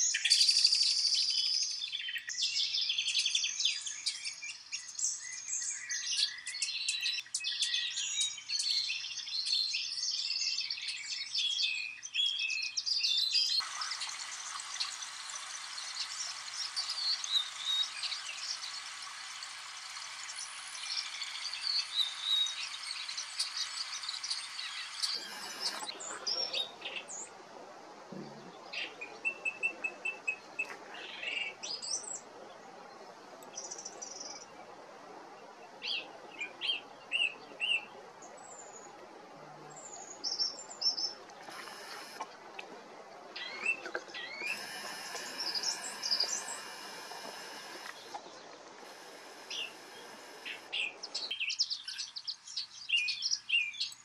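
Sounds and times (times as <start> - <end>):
songbirds chirping and trilling: 0.0 - 54.0
steady outdoor hiss: 0.0 - 54.0
creek running: 13.6 - 51.3.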